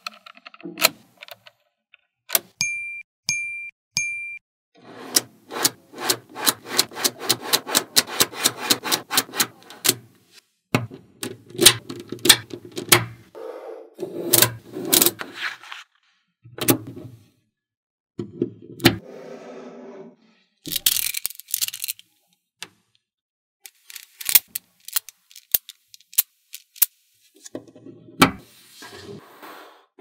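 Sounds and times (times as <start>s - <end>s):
balls rubbing and rolling: 4.8s - 10.4s, 14.0s - 15.8s, 23.7s - 29.4s
magnetic balls clicking: 23.7s - 26.9s.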